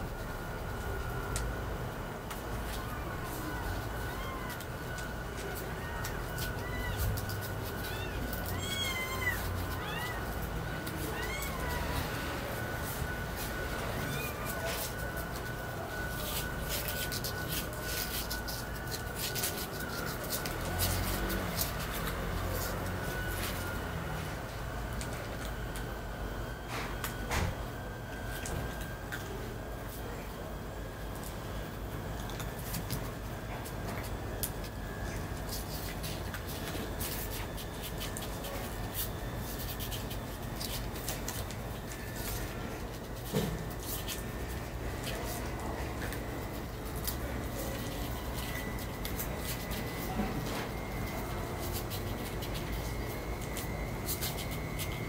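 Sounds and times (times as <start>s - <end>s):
low steady hum: 0.0s - 55.0s
claws scratching on cardboard: 3.2s - 24.2s, 32.3s - 55.0s.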